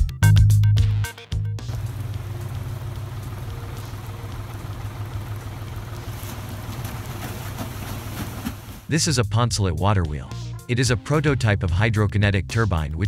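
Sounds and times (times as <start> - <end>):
river water rushing and splashing: 1.7 - 8.9.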